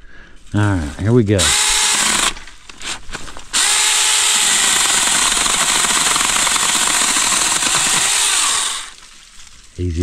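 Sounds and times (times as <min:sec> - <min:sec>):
electric chainsaw cutting wood: 0:01.4 - 0:09.0.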